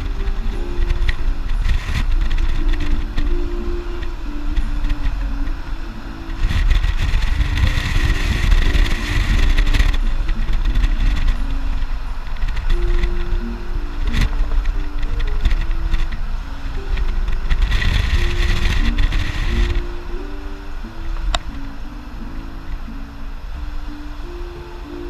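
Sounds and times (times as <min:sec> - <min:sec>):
hissing noise: 0:00.0 - 0:25.0
music playing: 0:00.0 - 0:25.0
vehicle rumble: 0:00.0 - 0:25.0
wind noise: 0:00.0 - 0:25.0.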